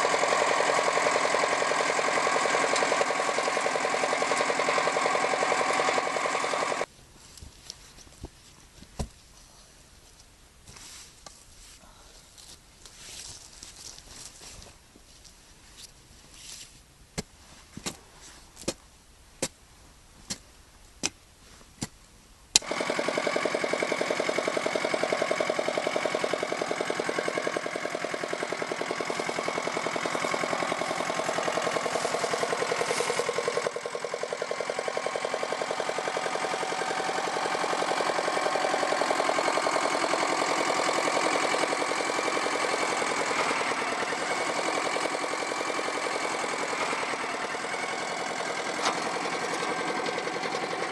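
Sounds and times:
tractor engine running: 0.0 - 6.9, 22.6 - 50.9
digging tool striking soil: 30.8 - 33.6.

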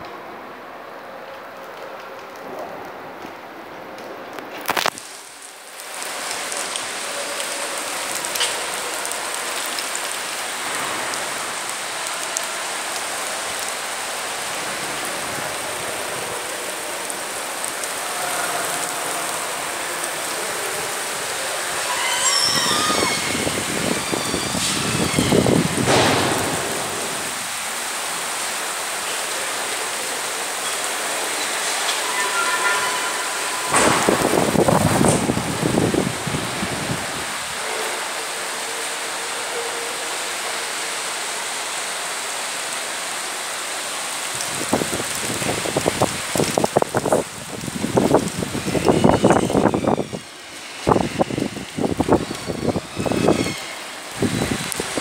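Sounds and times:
heavy rain and hail: 0.0 - 55.0
high wavering tones: 31.4 - 35.4.

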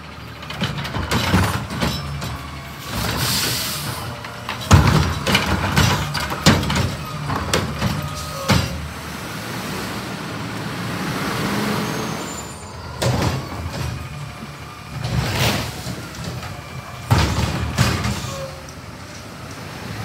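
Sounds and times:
garbage truck diesel engine: 0.0 - 20.0
cart knocking and clattering: 0.4 - 8.9, 13.0 - 14.3, 14.9 - 18.8.

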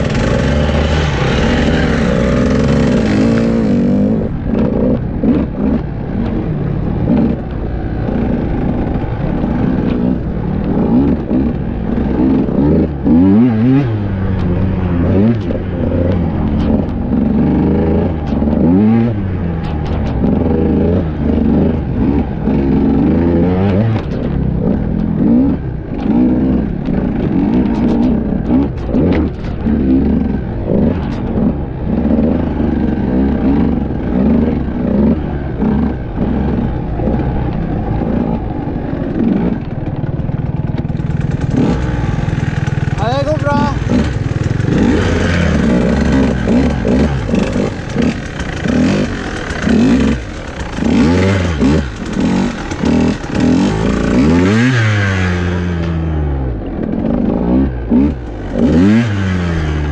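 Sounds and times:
motorcycle engine revving: 0.0 - 59.9
sharp knocks and clatter: 13.9 - 38.4.

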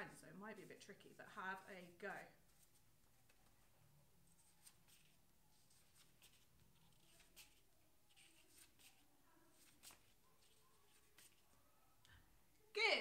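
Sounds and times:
flash cards rustling: 4.4 - 11.7.

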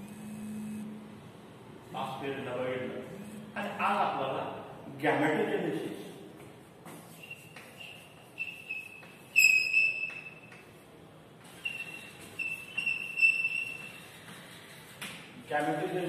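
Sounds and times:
chalk tapping: 6.8 - 10.8, 11.8 - 15.9
chalk squeaking on a blackboard: 6.9 - 10.7, 11.4 - 15.3.

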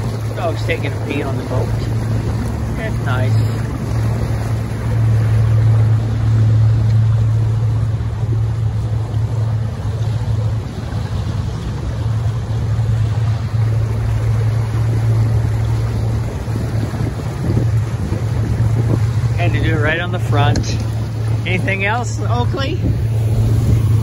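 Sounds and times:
outboard motor running: 0.0 - 24.0
water noise: 0.0 - 24.0
wind noise: 0.0 - 24.0.

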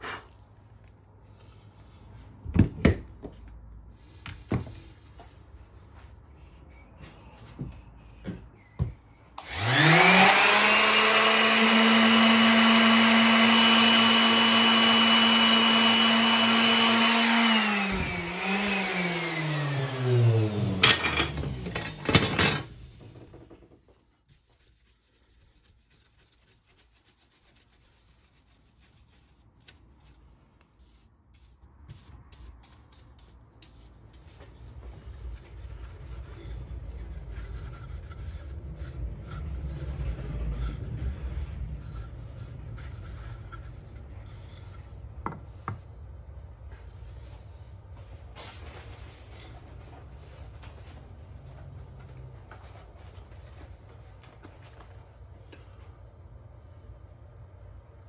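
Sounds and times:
power tool motor whining: 9.4 - 21.9
faint rubbing and handling: 23.4 - 56.2.

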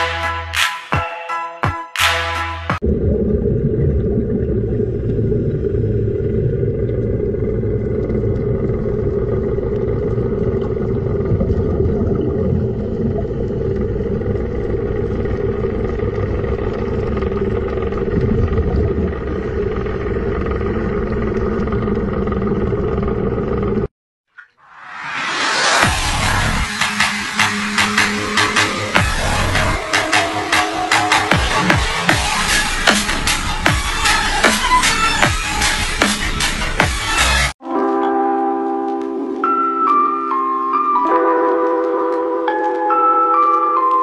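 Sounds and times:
boat engine rumbling: 2.8 - 23.9, 25.9 - 37.5.

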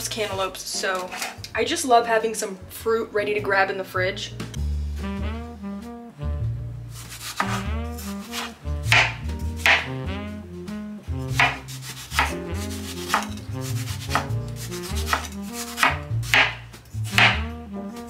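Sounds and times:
jazz music with brass: 2.8 - 18.0
knife chopping on wooden board: 7.2 - 9.9, 11.3 - 17.5.

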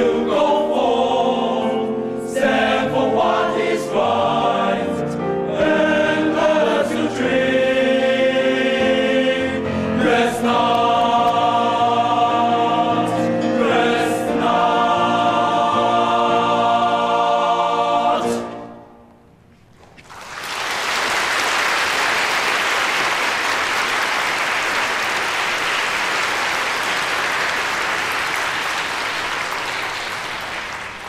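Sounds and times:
men's choir singing chord: 0.0 - 18.8
audience applause: 20.0 - 31.0.

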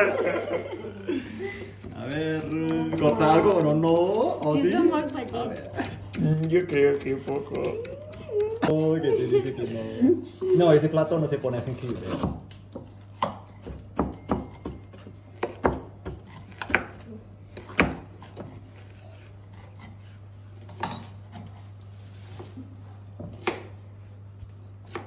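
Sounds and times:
knife chopping on cutting board: 11.7 - 21.6, 23.2 - 23.8, 24.4 - 25.0.

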